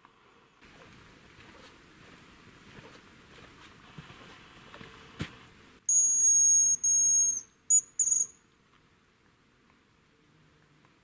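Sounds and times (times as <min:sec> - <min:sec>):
high thin decoy whistles: 0:05.9 - 0:08.4.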